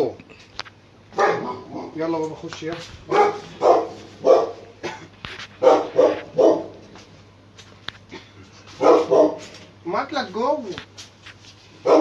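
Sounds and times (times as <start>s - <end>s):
dog barking: 1.1s - 2.0s, 3.1s - 4.7s, 5.6s - 6.8s, 8.8s - 9.5s.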